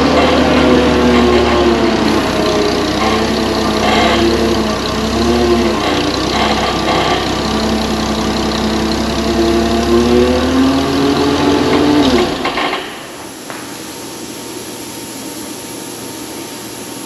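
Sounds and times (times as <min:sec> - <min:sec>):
vehicle engine idling: 0:00.0 - 0:13.6.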